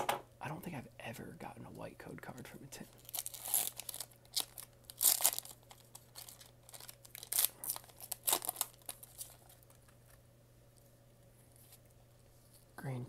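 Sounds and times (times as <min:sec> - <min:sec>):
foil wrapper crinkling: 0:02.9 - 0:10.2.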